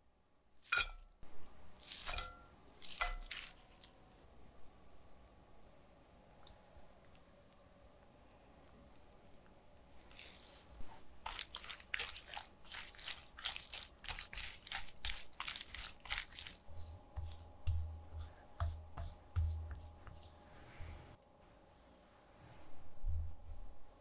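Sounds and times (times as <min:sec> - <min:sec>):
spatula tossing wet cabbage: 0:01.8 - 0:03.9, 0:10.0 - 0:20.3.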